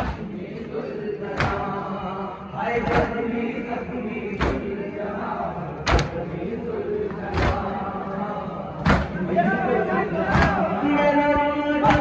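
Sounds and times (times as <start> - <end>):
men chanting in unison: 0.0 - 12.0
hands slapping chests: 1.4 - 1.6, 5.9 - 6.2, 8.8 - 9.2, 10.3 - 10.6.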